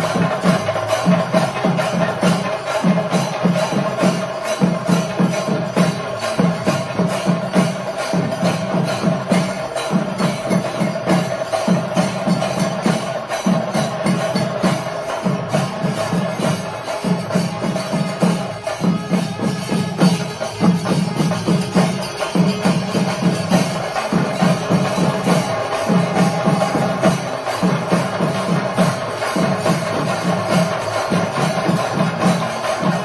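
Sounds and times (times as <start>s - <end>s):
drums beaten fast: 0.0s - 33.0s
hand cymbals ringing: 0.0s - 33.0s.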